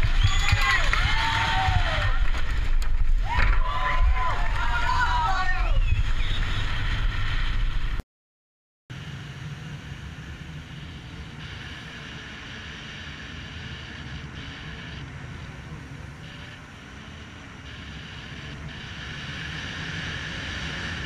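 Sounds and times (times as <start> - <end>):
jet ski engine running: 9.0 - 21.0.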